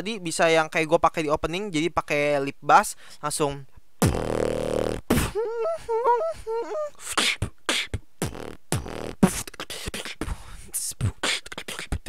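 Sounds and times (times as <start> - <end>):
beatbox beat: 4.0 - 12.0
whistly vocal multi-tone effect: 5.2 - 8.0.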